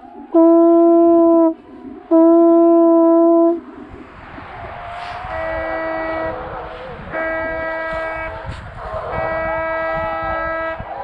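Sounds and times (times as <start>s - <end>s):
hunting horn blasts: 0.3s - 3.6s, 5.3s - 6.4s, 7.1s - 8.4s, 9.1s - 10.9s.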